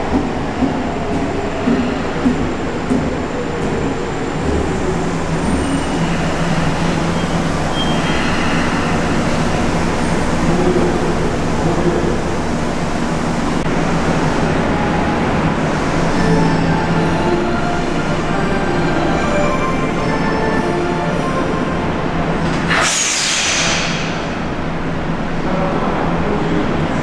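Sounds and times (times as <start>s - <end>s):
train wheels rumbling on rails: 0.0s - 19.2s.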